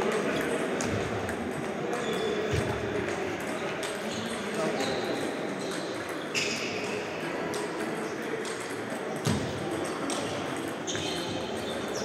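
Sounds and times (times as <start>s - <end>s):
ping pong ball clicking: 7.5s - 10.8s.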